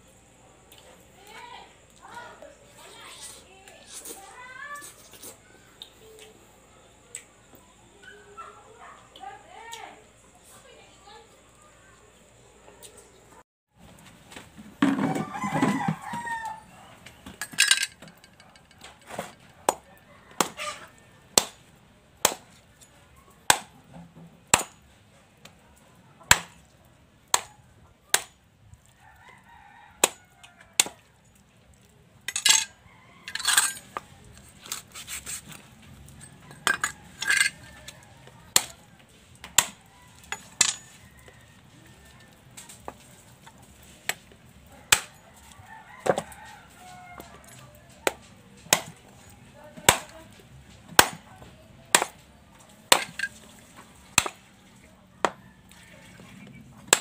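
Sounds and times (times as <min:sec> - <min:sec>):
rooster crowing: 0:14.8 - 0:17.1, 0:19.8 - 0:21.3, 0:28.9 - 0:31.1, 0:32.6 - 0:34.0, 0:36.2 - 0:39.0, 0:39.8 - 0:42.4, 0:45.2 - 0:47.8, 0:55.3 - 0:56.5
cleaver chopping on wooden block: 0:22.2 - 0:22.5, 0:24.5 - 0:24.8, 0:26.3 - 0:26.6, 0:28.1 - 0:28.3, 0:30.0 - 0:30.2, 0:39.4 - 0:39.8, 0:48.1 - 0:49.0, 0:50.9 - 0:51.2, 0:51.9 - 0:52.2, 0:52.9 - 0:53.3, 0:54.2 - 0:54.4.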